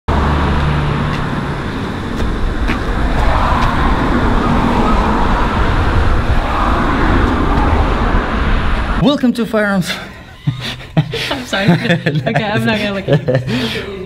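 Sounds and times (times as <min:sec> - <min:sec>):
road traffic rumble: 0:00.1 - 0:09.0.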